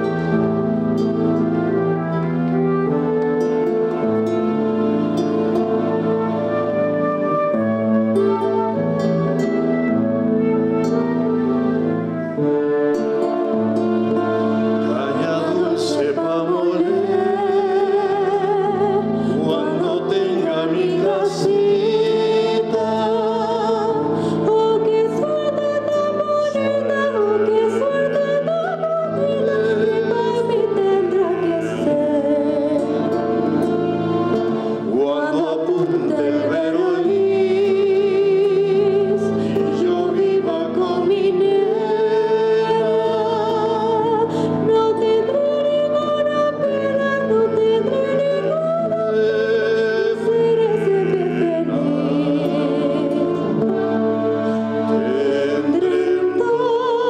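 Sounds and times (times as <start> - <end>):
woman singing: 14.2 - 57.0
man singing: 14.8 - 18.5, 19.4 - 24.1, 34.8 - 44.1, 47.9 - 57.0.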